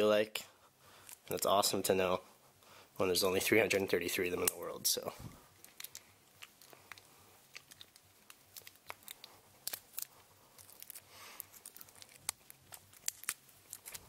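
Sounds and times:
cellophane crinkling: 0:05.5 - 0:14.0.

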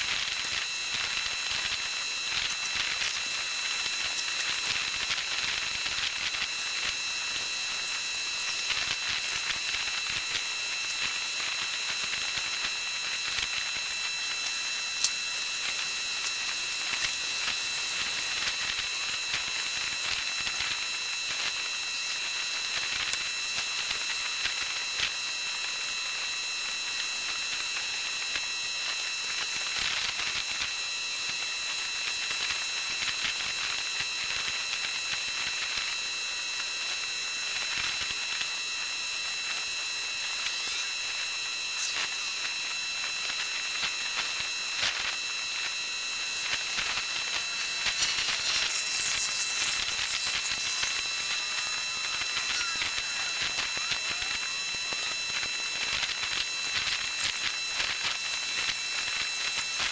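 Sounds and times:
thin high-pitched whine: 0:00.0 - 0:59.9
steady high hiss: 0:37.5 - 0:59.9
faint crackles: 0:37.7 - 0:59.2.

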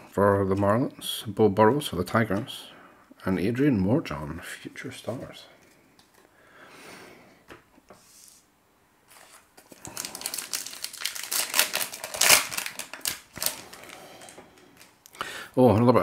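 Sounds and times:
foil wrapper crinkling and tearing: 0:09.1 - 0:15.0.

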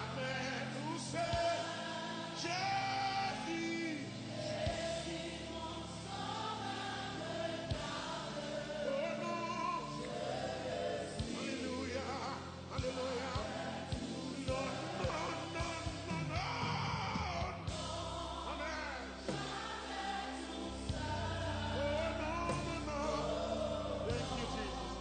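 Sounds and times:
choir singing gospel song: 0:00.0 - 0:25.0
band with bass and drums: 0:12.8 - 0:18.2, 0:20.8 - 0:25.0.

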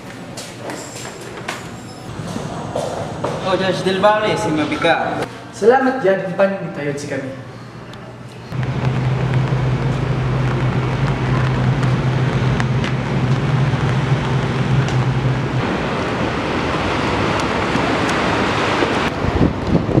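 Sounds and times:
steady low hum: 0:06.5 - 0:20.0
wind buffeting microphone: 0:08.6 - 0:20.0.

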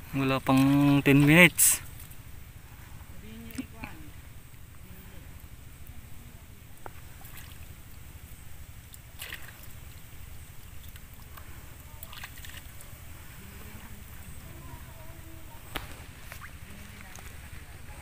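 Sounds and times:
water sloshing: 0:00.0 - 0:18.0
short splashes: 0:06.9 - 0:08.0, 0:08.8 - 0:14.0, 0:15.6 - 0:17.3.

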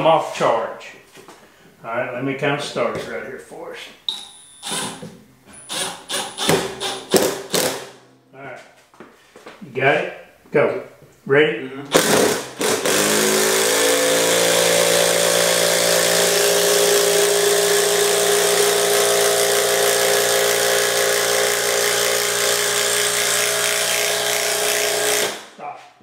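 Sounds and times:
cordless impact driver hammering: 0:04.1 - 0:08.0, 0:11.9 - 0:25.5.

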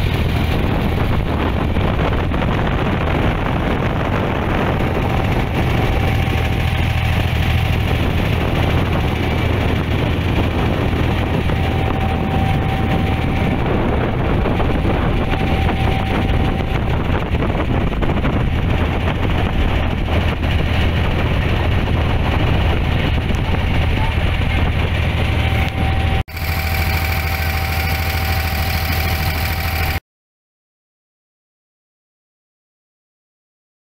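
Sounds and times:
boat engine drone: 0:00.0 - 0:30.0
water noise: 0:00.0 - 0:30.0
wind: 0:00.0 - 0:30.0.

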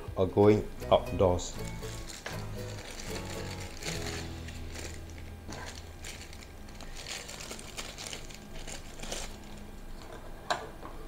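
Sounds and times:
plastic film crinkling: 0:01.6 - 0:10.1.

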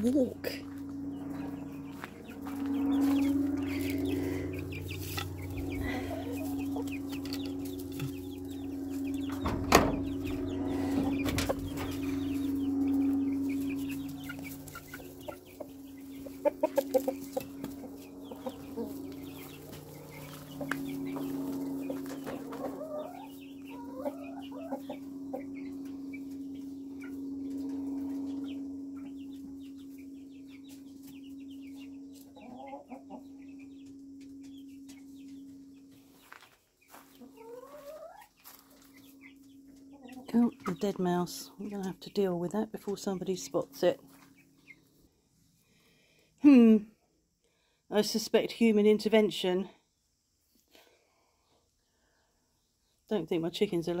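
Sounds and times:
hens clucking: 0:00.0 - 0:28.6, 0:32.1 - 0:33.8, 0:36.2 - 0:44.8
steady low hum: 0:00.0 - 0:54.0.

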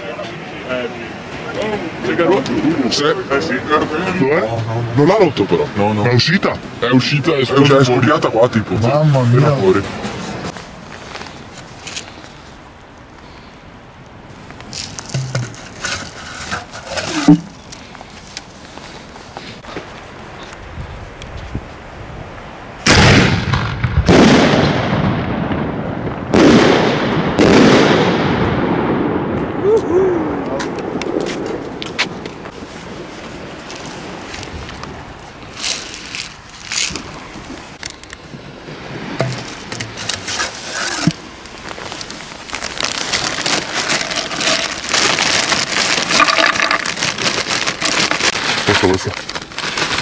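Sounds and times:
plastic bag crinkling: 0:14.6 - 0:18.4, 0:35.4 - 0:38.2, 0:39.4 - 0:50.0
handling knocks: 0:15.0 - 0:17.6
firework shells booming: 0:22.8 - 0:29.6.

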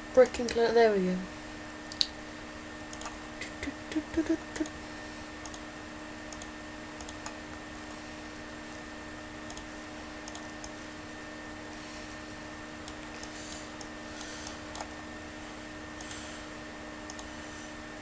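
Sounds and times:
steady background hum: 0:00.0 - 0:18.0
computer mouse clicking: 0:02.9 - 0:03.6, 0:05.4 - 0:05.6, 0:06.3 - 0:07.4, 0:09.5 - 0:10.8, 0:12.8 - 0:14.9, 0:16.0 - 0:16.3, 0:17.1 - 0:17.4.

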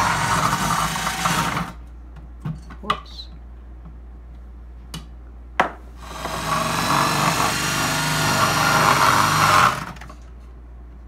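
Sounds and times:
food processor motor running: 0:00.0 - 0:01.8, 0:06.0 - 0:10.1.

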